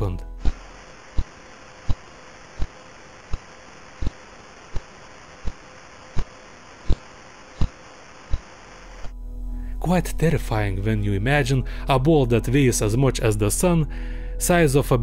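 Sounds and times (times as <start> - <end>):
steady hiss: 0.0 - 9.1.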